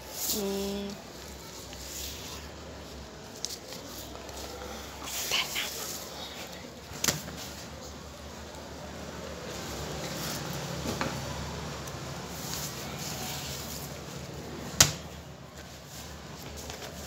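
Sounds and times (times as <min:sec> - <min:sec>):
paper rustling on desk: 0:15.5 - 0:17.0.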